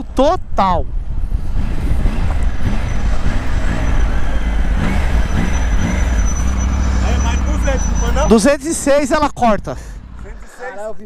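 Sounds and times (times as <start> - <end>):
wind rushing over microphone: 0.0 - 7.0
motorcycle engine downshifting: 1.4 - 8.5.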